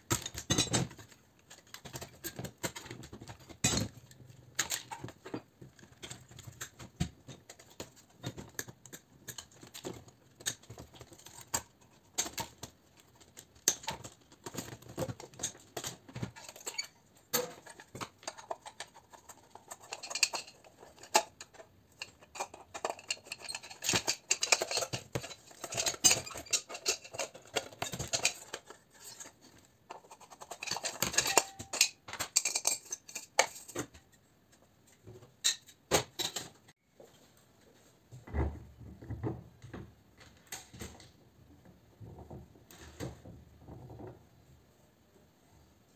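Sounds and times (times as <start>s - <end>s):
hand tools clicking and rattling: 0.1s - 33.9s.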